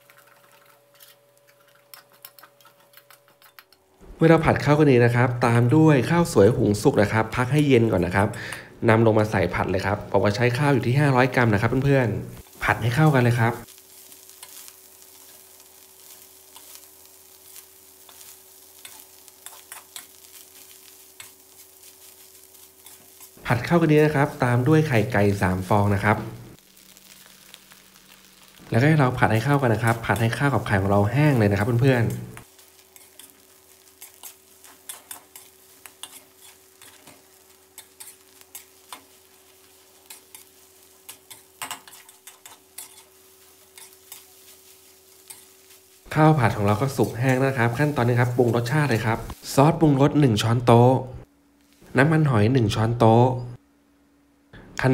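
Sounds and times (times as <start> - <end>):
rice sizzling in a wok: 0.0 - 52.4
metal spatula scraping wok: 13.9 - 23.4, 29.8 - 45.8.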